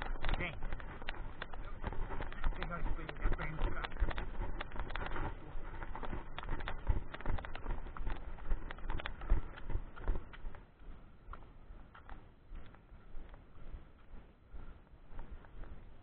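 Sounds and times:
footsteps on concrete steps: 0:00.0 - 0:16.0.

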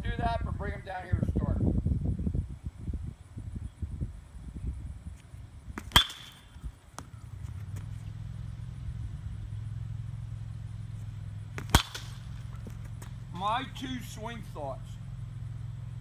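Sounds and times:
low engine hum: 0:05.3 - 0:16.0
bat hitting ball: 0:05.7 - 0:07.3, 0:11.4 - 0:13.4.

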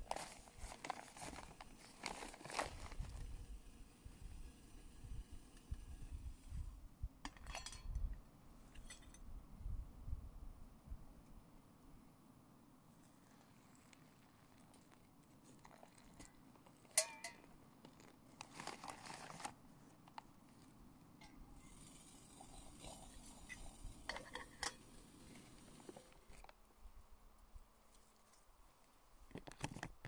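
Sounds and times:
pouch crinkling: 0:00.0 - 0:03.2, 0:17.9 - 0:20.3
metal pot clinking: 0:07.3 - 0:08.0, 0:16.9 - 0:17.5
hot water pouring into pouch: 0:13.3 - 0:17.0
pot clattering on stove: 0:17.0 - 0:17.4.

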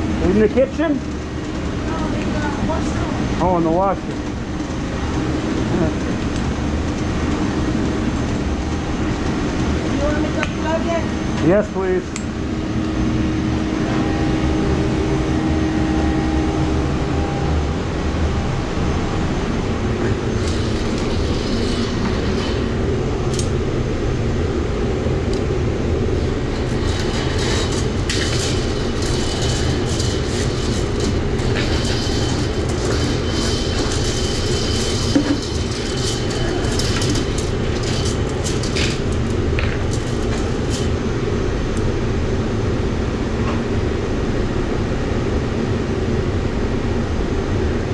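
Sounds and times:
drain-cleaning machine running: 0:00.0 - 0:42.7
metallic clatter: 0:20.0 - 0:23.6, 0:26.1 - 0:41.2
steel cable rattling: 0:20.2 - 0:23.7, 0:26.1 - 0:41.2.

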